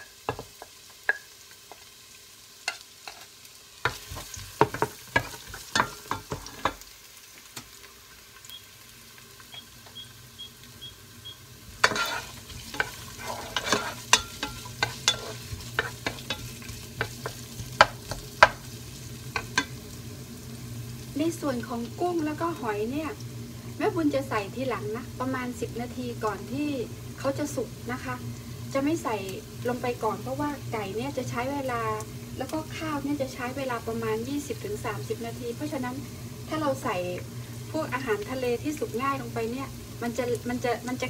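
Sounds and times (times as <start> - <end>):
onion and garlic frying: 0.0 - 41.0
wooden spatula scraping pot: 11.8 - 18.6.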